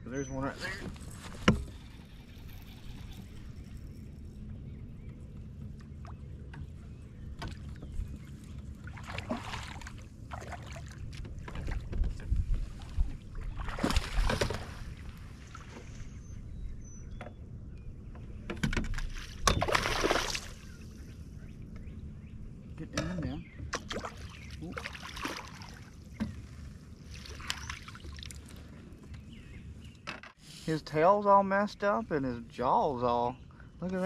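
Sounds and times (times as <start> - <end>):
steady low rumble: 2.1 - 18.5
fish splashing in water: 19.6 - 20.6, 23.8 - 25.9.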